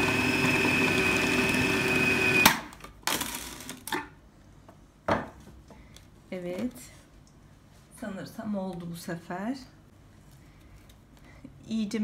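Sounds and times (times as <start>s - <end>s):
food processor motor whining: 0.0s - 2.7s.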